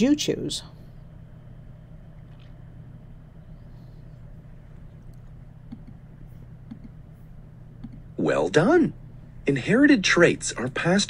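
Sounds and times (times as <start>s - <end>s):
steady low hum: 0.0s - 11.0s
faint clicks: 4.8s - 6.0s.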